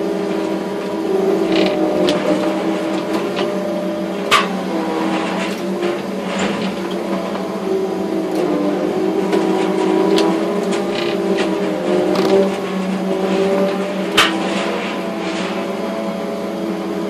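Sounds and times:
crane engine and hydraulics: 0.0s - 17.0s.

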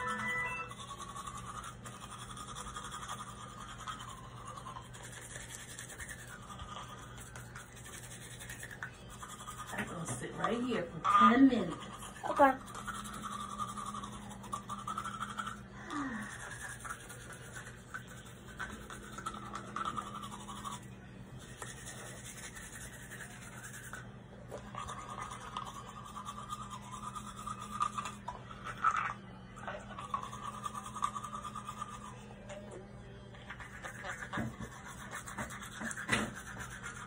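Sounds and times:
toothbrush scrubbing teeth: 0.0s - 37.0s.

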